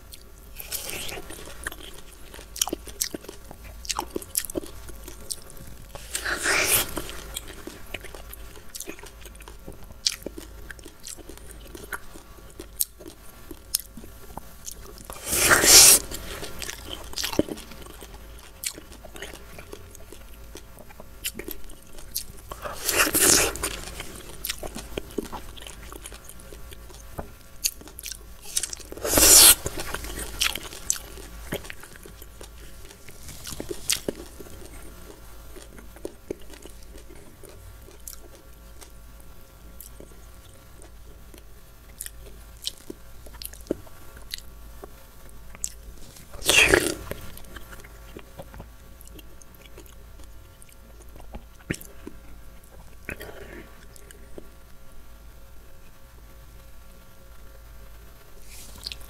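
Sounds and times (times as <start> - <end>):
juicy fruit bites: 0.1 - 27.0, 27.6 - 38.9, 45.6 - 49.9.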